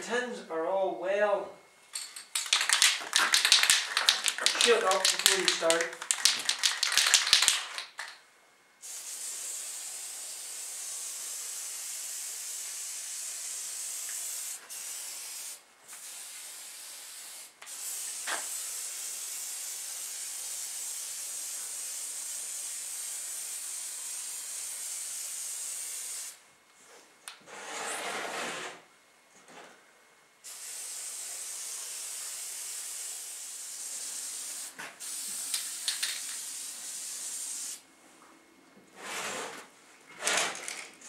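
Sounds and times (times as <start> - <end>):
spray paint can hissing: 2.3 - 8.2, 8.8 - 26.4, 30.5 - 37.8.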